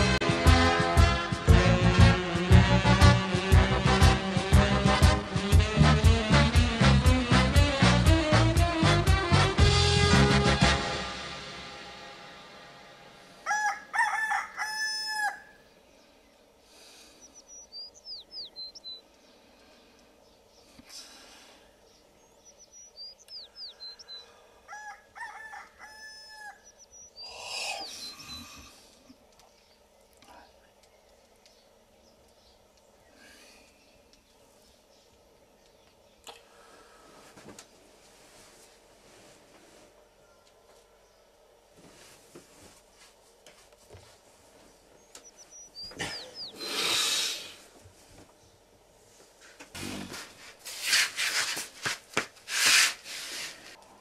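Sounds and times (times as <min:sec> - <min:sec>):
rooster crowing: 0:13.4 - 0:15.6, 0:24.6 - 0:26.8, 0:40.0 - 0:41.4
small birds chirping: 0:15.9 - 0:24.6, 0:26.5 - 0:36.8, 0:44.6 - 0:47.6
bedding rustling: 0:37.1 - 0:40.0, 0:41.7 - 0:45.1, 0:49.0 - 0:53.8.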